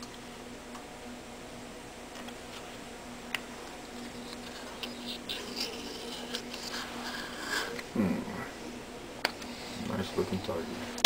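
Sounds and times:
low hum: 0.0s - 11.0s
razor blade scratching eggshell: 3.9s - 7.8s.

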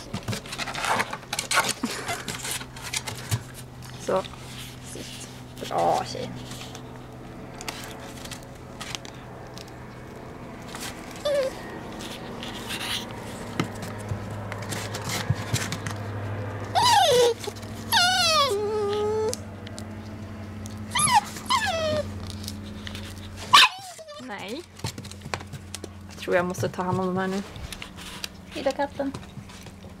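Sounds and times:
puppy whimpering: 11.0s - 13.0s, 16.7s - 19.4s, 20.8s - 24.6s.

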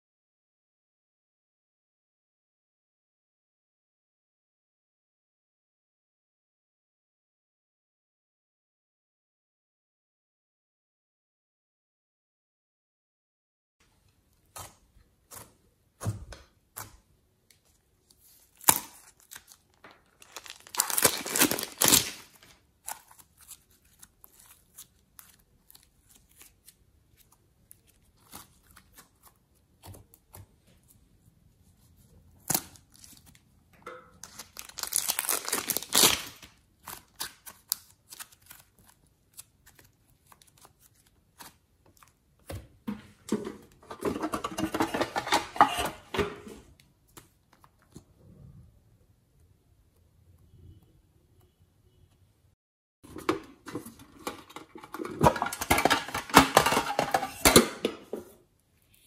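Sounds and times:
plastic bags crinkling: 19.2s - 24.7s, 34.2s - 37.1s.

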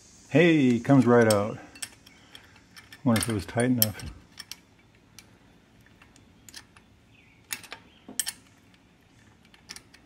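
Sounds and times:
metal wrench clicking and clinking: 0.7s - 5.3s, 6.1s - 6.9s, 7.5s - 8.6s, 9.4s - 10.0s.

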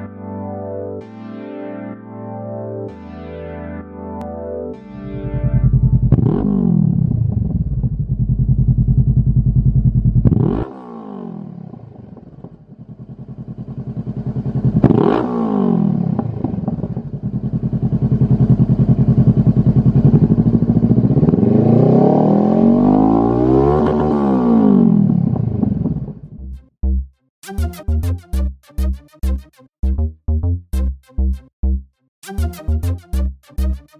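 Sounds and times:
motorcycle engine revving: 5.1s - 26.4s.

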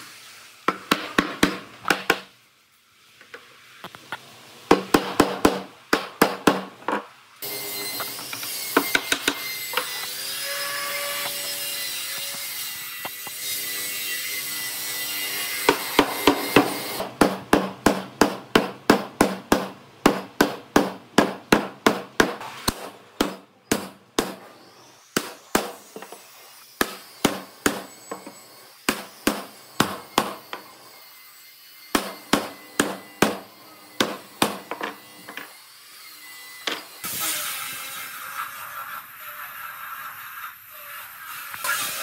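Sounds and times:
steady hiss: 0.0s - 1.2s.

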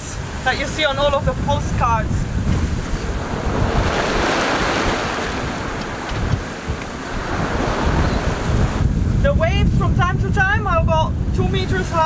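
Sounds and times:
waves rushing and breaking: 0.0s - 12.0s
wind buffeting the microphone: 0.0s - 12.0s.

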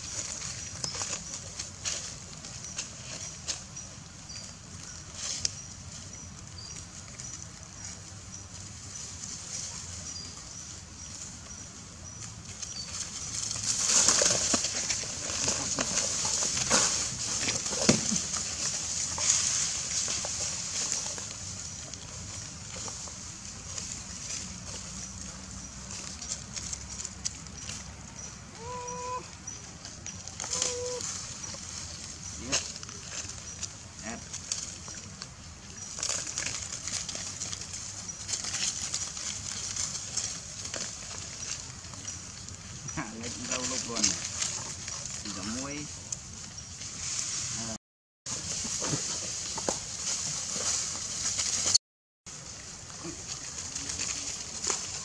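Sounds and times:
dry leaves crackling: 0.0s - 55.0s.

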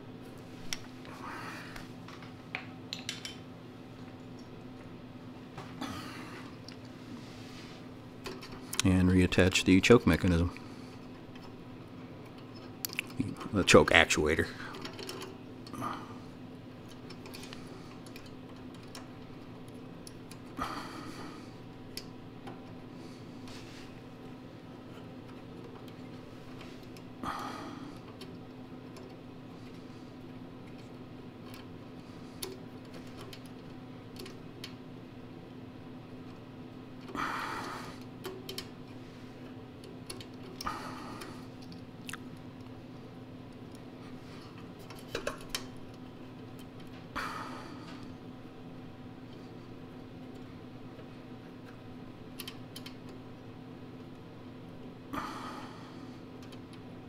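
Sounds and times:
steady low hum: 0.0s - 57.0s
metallic clicks and rattles of parts: 2.1s - 3.4s, 14.7s - 15.4s, 16.8s - 20.4s, 32.4s - 34.8s, 39.8s - 40.6s, 44.8s - 47.0s, 51.6s - 53.2s.

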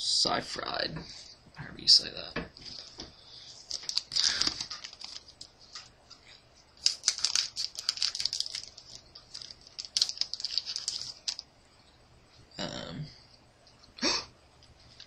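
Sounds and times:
crinkling wrapper and cards: 2.6s - 6.0s, 6.8s - 11.5s.

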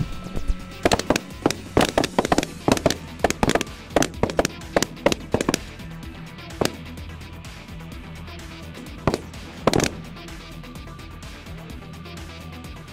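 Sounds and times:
background music: 0.0s - 12.9s
shotgun shots: 0.8s - 5.6s, 9.1s - 10.1s.

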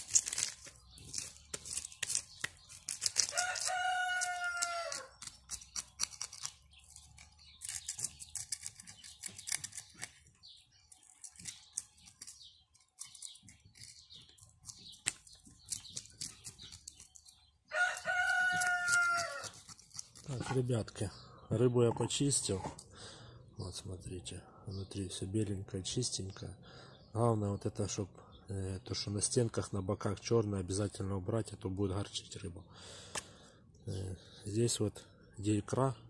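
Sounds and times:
knife scraping fish scales: 0.0s - 10.4s, 11.0s - 20.6s
rooster crowing: 3.3s - 5.1s, 17.7s - 19.6s.

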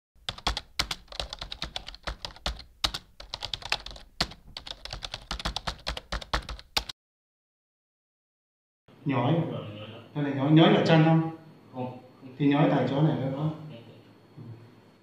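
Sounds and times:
keyboard typing clicks: 0.3s - 6.9s.

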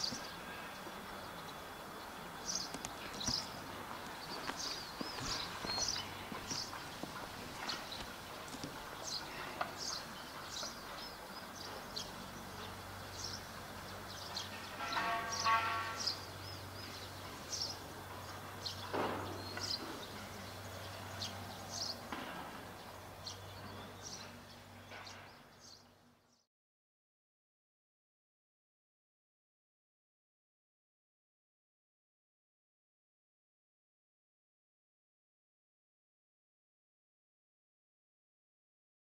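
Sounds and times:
small birds chirping: 0.0s - 26.5s.

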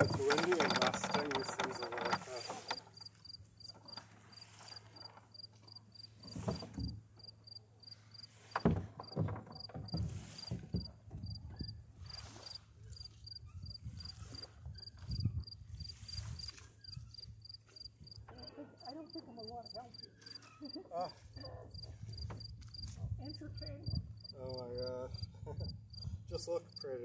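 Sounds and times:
cricket chirping: 3.0s - 6.3s, 7.2s - 8.3s, 14.8s - 20.9s, 23.8s - 27.0s.

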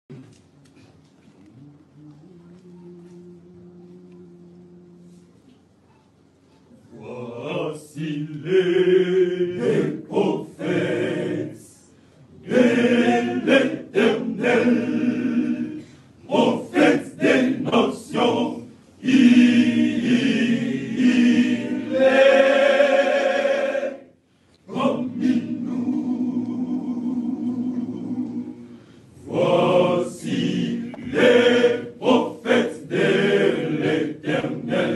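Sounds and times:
men's choir singing: 6.9s - 24.1s, 24.7s - 34.9s.

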